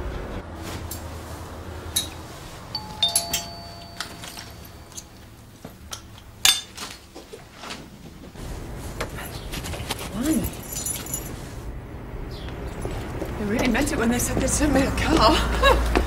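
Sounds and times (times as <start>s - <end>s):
two-tone doorbell chime: 2.8s - 5.0s.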